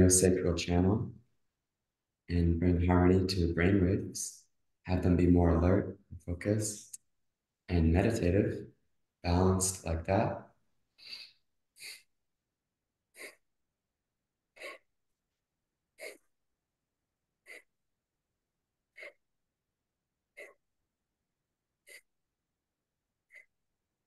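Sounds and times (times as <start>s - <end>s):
short sharp breaths: 11.0s - 12.2s.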